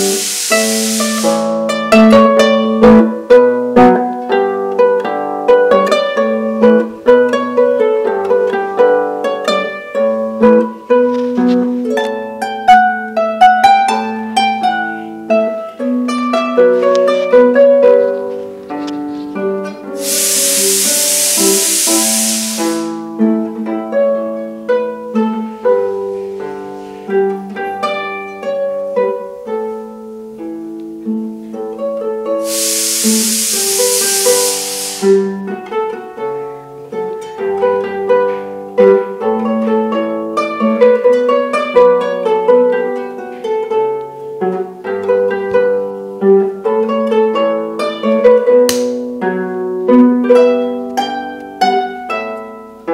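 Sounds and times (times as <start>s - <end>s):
rushing hiss: 0.0s - 1.8s, 20.0s - 23.1s, 32.4s - 35.4s
harp plucked: 0.0s - 23.7s, 46.7s - 52.6s.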